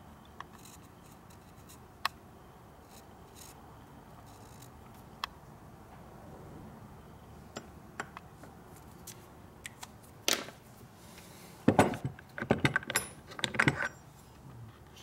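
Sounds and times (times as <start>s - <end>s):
metal clinks and knocks: 11.7s - 14.1s.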